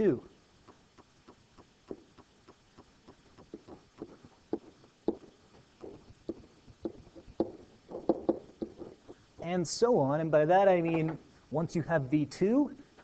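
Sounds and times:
stylus tapping and scratching: 0.6 - 9.5.

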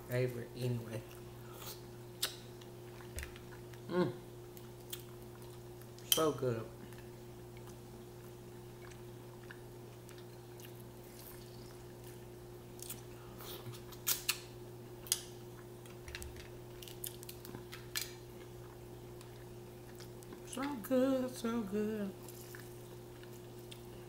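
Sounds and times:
steady low hum: 0.0 - 24.0
person chewing with wet smacks: 1.0 - 20.8, 22.2 - 24.0.

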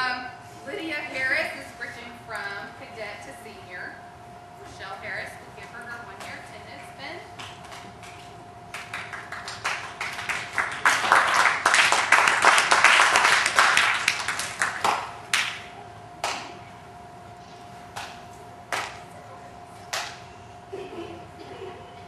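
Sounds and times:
audience applause: 8.7 - 15.6.

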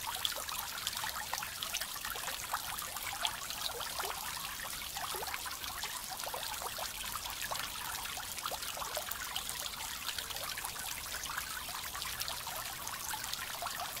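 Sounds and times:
fountain water pattering on pond: 0.0 - 14.0.

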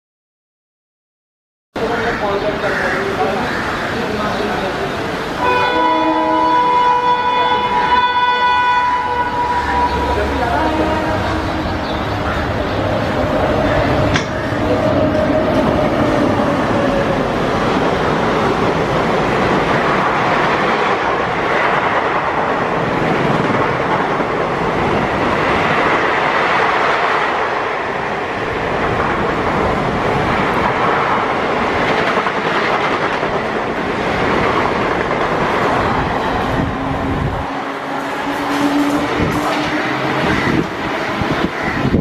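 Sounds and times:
train wheels rattling on rails: 1.8 - 42.0
locomotive horn: 5.4 - 11.8, 38.1 - 40.6.

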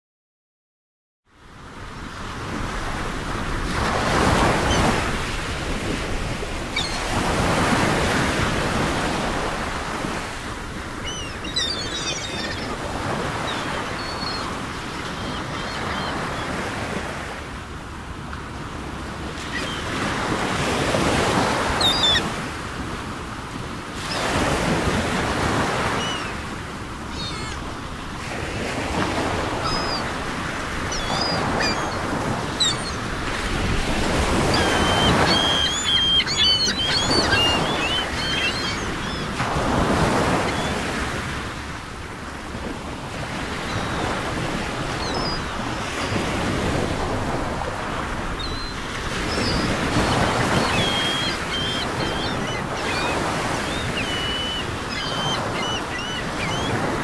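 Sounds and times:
ocean waves washing onto shore: 1.4 - 57.0
high bird chirps: 34.5 - 39.2, 49.3 - 56.8.

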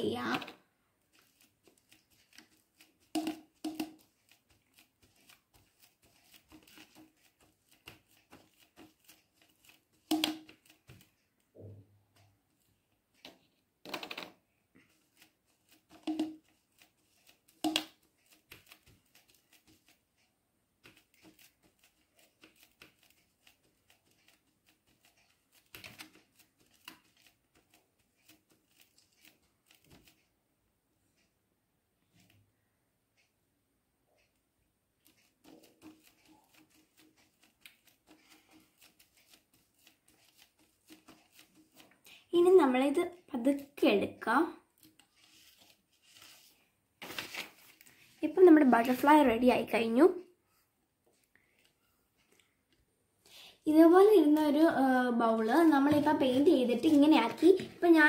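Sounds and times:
sponge dabbing taps: 0.0 - 30.3, 35.0 - 43.8, 53.8 - 58.0
paper rustling: 0.2 - 11.4, 12.2 - 30.3, 35.0 - 42.2, 44.8 - 49.1, 55.3 - 58.0.

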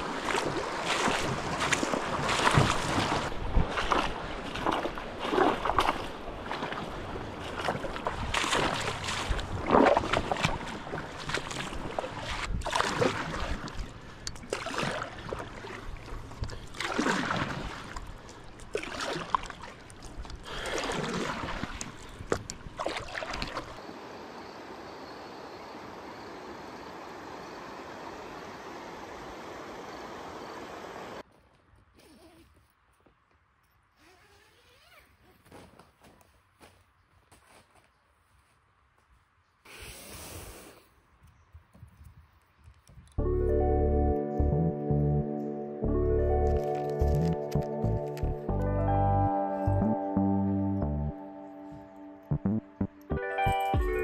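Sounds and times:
paddle splashing in water: 0.0 - 23.8
flowing water rushing: 0.0 - 31.2.

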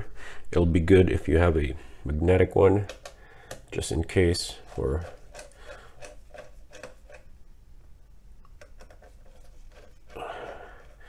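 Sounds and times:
screwdriver clicking and scraping: 2.8 - 3.8, 4.6 - 7.3, 8.4 - 11.0.

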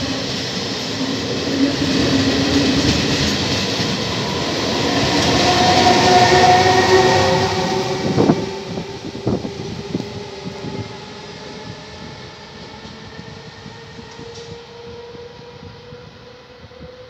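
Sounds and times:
train wheels rumbling on rails: 0.0 - 17.0
train whine: 0.0 - 17.0.

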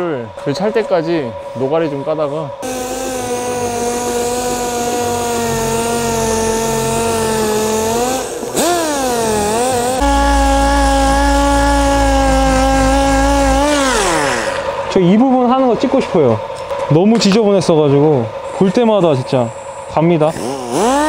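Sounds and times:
air sander whining: 2.6 - 15.5, 18.4 - 21.0
low rumble: 10.0 - 14.6.

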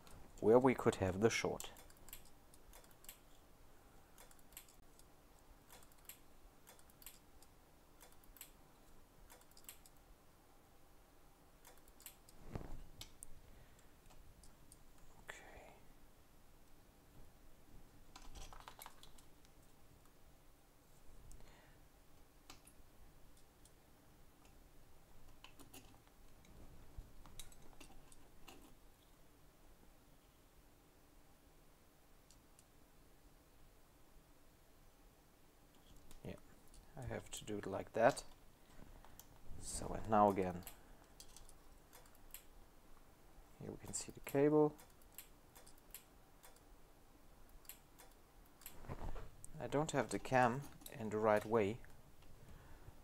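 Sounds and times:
light clicks and ticks: 1.5 - 3.4, 4.2 - 10.0, 11.6 - 12.4, 39.0 - 43.1, 43.8 - 46.7, 47.5 - 48.8.

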